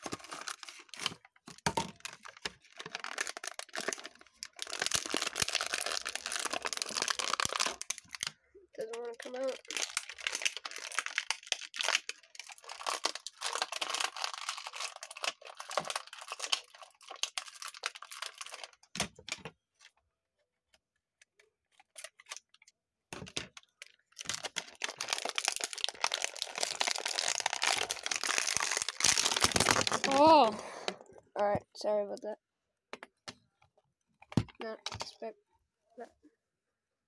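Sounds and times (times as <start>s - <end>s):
plastic packaging crinkling and tearing: 0.0s - 19.5s, 21.7s - 31.0s.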